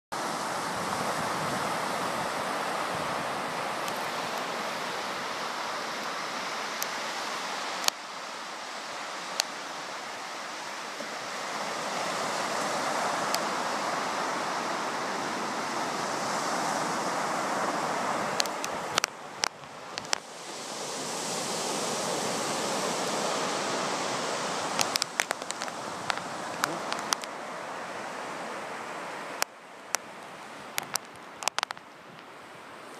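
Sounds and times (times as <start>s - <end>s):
surf washing onto beach: 0.2s - 32.9s.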